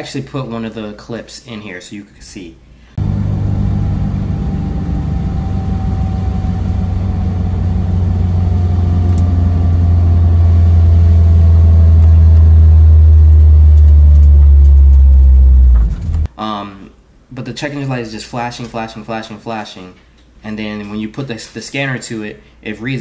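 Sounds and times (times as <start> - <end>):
car engine drone in cabin: 3.0 - 16.3.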